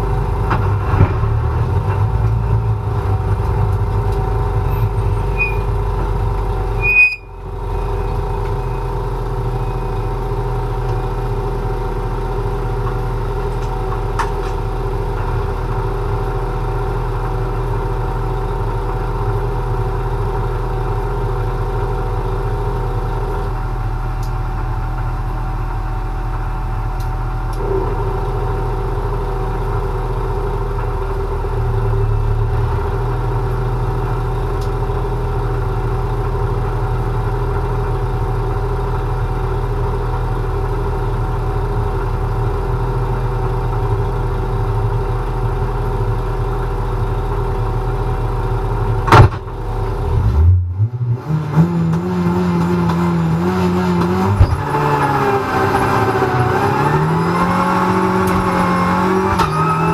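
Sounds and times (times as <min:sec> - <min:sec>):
race car engine: 0:00.0 - 0:59.9
loud clunk: 0:00.5 - 0:02.1, 0:49.0 - 0:49.6.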